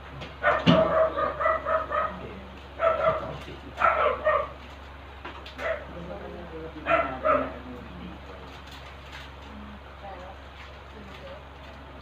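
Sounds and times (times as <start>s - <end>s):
dog barking: 0.4s - 4.6s, 5.6s - 6.0s, 6.8s - 7.6s.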